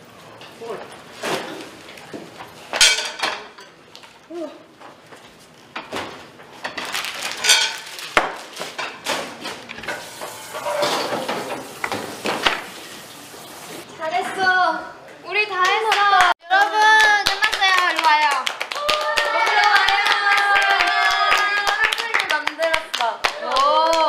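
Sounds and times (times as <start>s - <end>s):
pots and pans clattering: 1.2s - 3.8s, 5.8s - 12.8s
spatula scraping frying pan: 9.7s - 12.2s.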